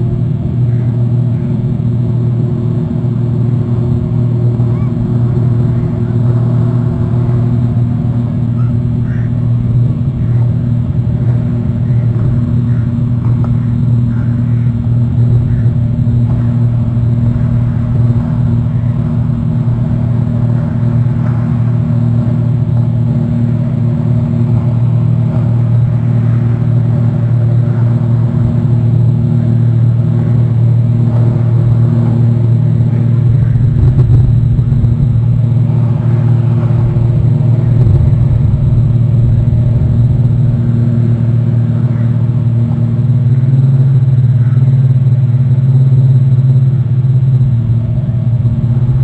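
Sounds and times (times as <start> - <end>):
boat engine droning: 0.0 - 49.0.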